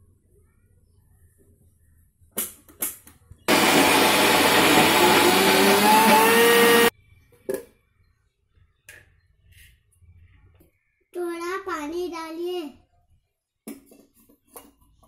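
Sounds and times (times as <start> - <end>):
mixer grinder running: 3.5 - 6.9.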